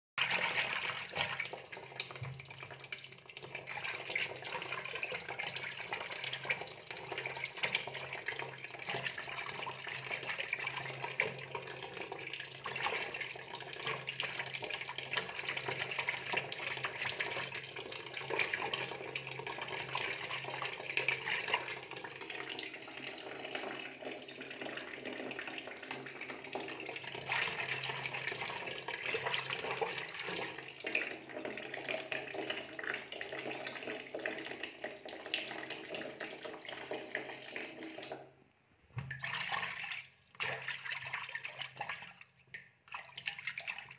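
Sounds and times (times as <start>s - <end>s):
water splashing in a fish tank: 0.2s - 43.9s.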